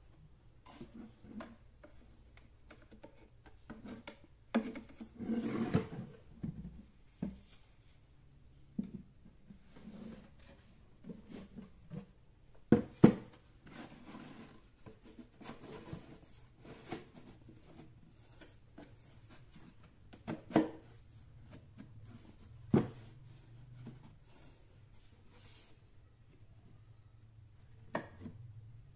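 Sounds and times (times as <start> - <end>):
plastic rubbing and scraping: 12.9 - 25.9.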